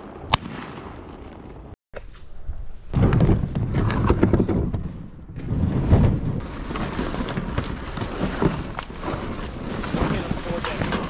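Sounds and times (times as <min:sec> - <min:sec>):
gear scraping over dirt: 0:03.0 - 0:11.0.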